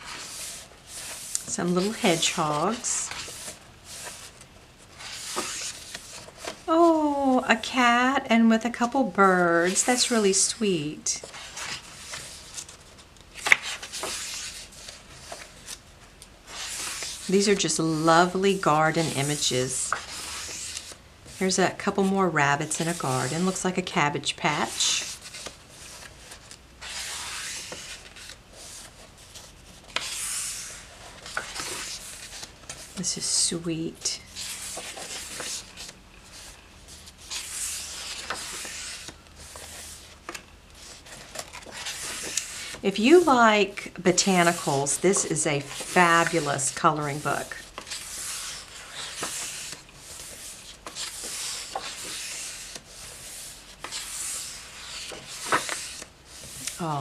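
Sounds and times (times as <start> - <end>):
book pages turning: 0.0 - 7.4, 11.2 - 57.0
page slapping down: 53.8 - 56.8.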